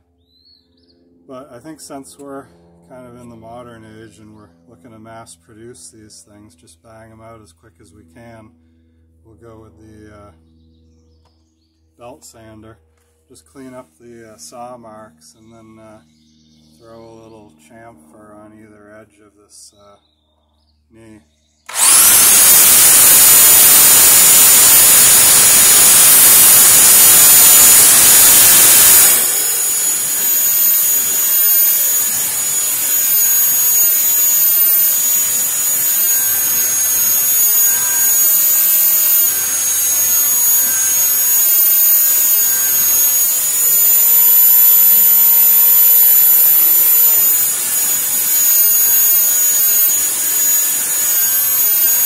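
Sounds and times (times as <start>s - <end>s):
belt sander whining: 21.7s - 52.0s
wood sanding on belt: 21.7s - 52.0s.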